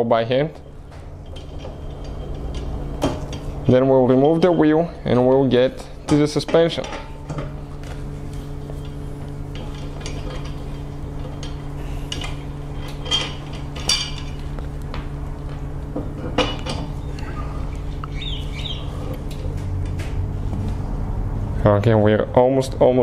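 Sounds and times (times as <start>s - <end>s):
steady low hum: 0.0s - 23.0s
metal clinks of lug nuts: 0.6s - 5.2s, 8.7s - 14.5s.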